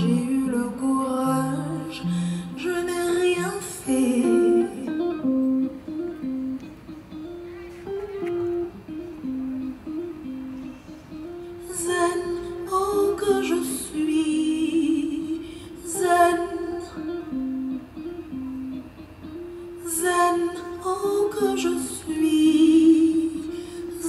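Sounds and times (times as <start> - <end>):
woman singing: 0.0 - 5.8, 11.5 - 17.8, 19.8 - 24.0
plucked string melody: 0.0 - 24.0.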